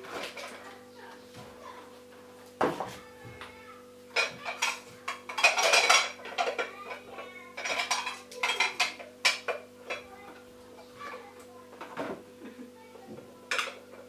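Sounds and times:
glass kitchenware clinking: 4.2s - 6.7s, 7.6s - 10.1s.

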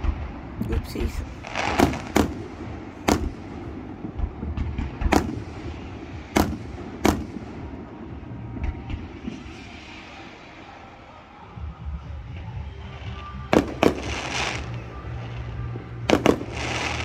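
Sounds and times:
firework shells bursting: 1.4s - 7.5s.

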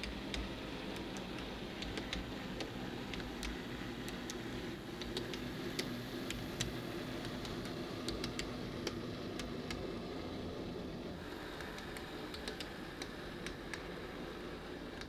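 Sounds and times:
model train wheels clicking: 11.2s - 14.0s.

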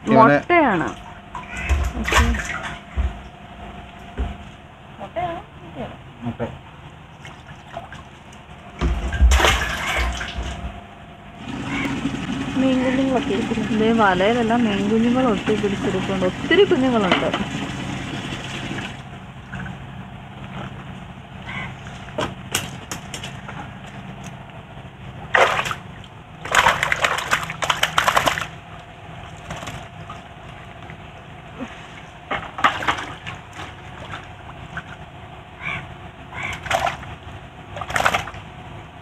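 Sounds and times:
water splashing in a tub: 0.6s - 3.3s, 7.1s - 19.8s, 25.2s - 31.4s, 32.4s - 35.2s, 36.4s - 38.5s.

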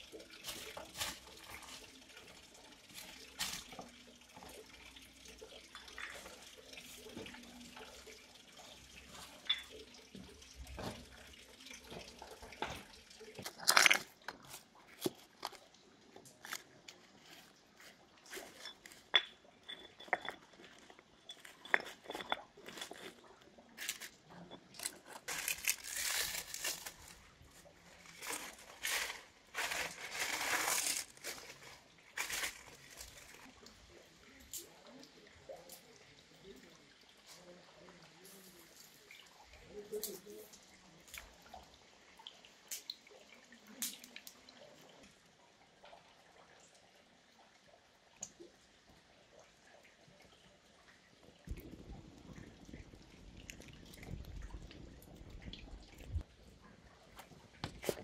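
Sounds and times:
stones clacking on rock: 13.4s - 15.6s, 18.6s - 23.2s
crunching and rustling sticks: 23.8s - 33.5s
twigs crackling: 24.8s - 27.3s, 27.9s - 33.5s.

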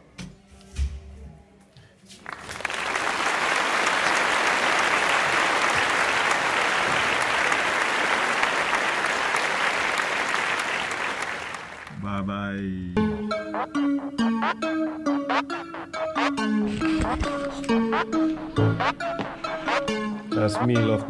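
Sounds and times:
applause: 2.2s - 12.0s.

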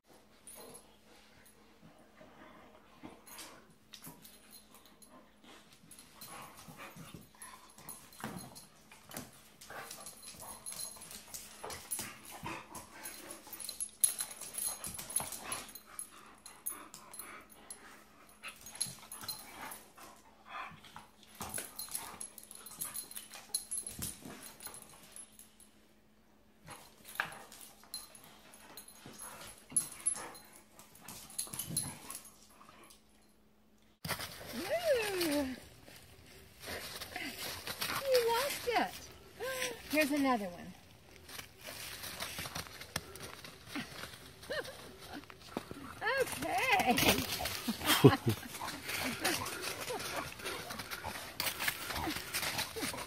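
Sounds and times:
dogs play-fighting: 0.1s - 53.0s
faint steady hum: 0.1s - 53.0s
scuffling: 34.0s - 53.0s.

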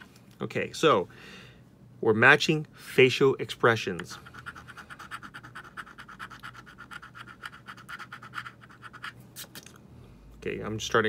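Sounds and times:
coin scratching lottery ticket: 4.2s - 9.2s.

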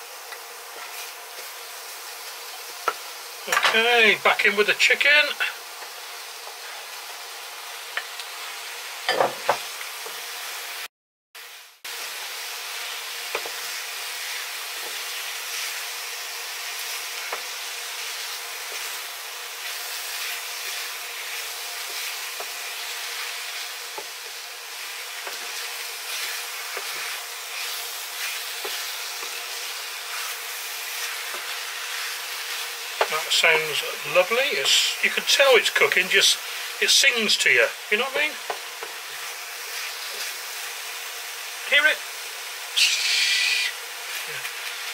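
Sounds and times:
chicken sizzling in frying pan: 0.0s - 44.9s
wooden spatula scraping pan: 25.2s - 29.4s.

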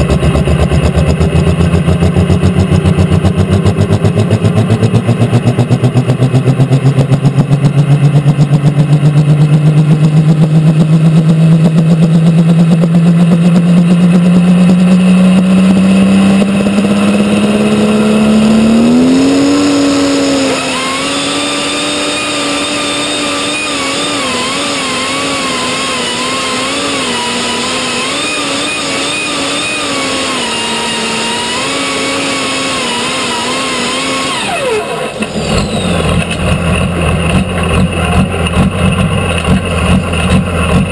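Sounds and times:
diesel tractor engine under load: 0.0s - 40.9s.

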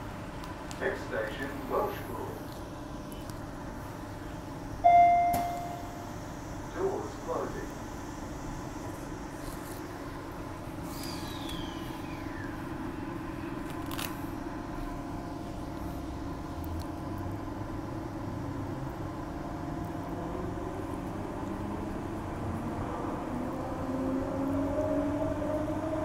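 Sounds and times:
train running hum: 0.0s - 26.0s
train doors shutting with thud: 4.8s - 6.0s
traction motors whining: 10.6s - 14.3s
falling whistle-like tone: 11.0s - 12.6s.

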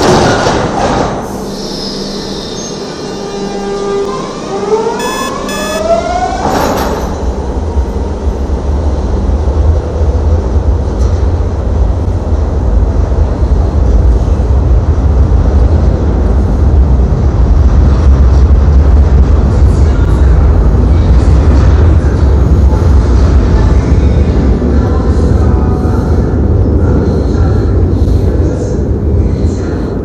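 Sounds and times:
train low rumble: 6.8s - 30.0s.

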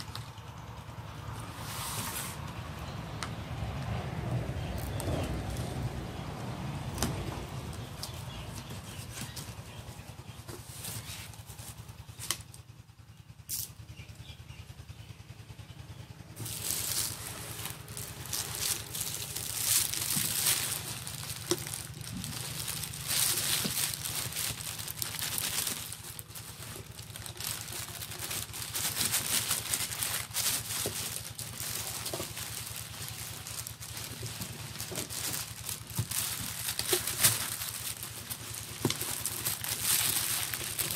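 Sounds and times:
cardboard rustling and scraping: 1.4s - 2.4s, 7.0s - 12.4s, 16.4s - 40.9s.

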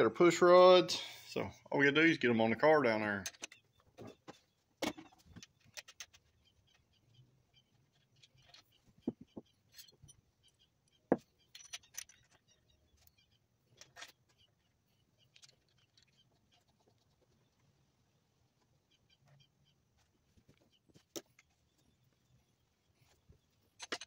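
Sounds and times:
metallic clicks of engine parts: 3.2s - 3.8s, 7.9s - 16.2s, 23.7s - 24.0s.

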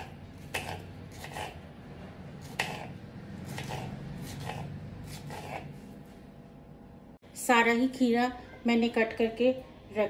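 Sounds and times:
knife chopping on cutting board: 0.0s - 1.6s, 2.4s - 5.8s.

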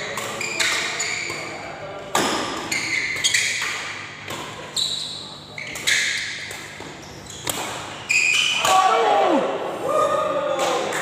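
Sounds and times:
shoes squeaking on court: 0.0s - 1.7s, 2.3s - 8.6s
rackets hitting shuttlecock: 0.0s - 4.7s, 5.7s - 8.9s.

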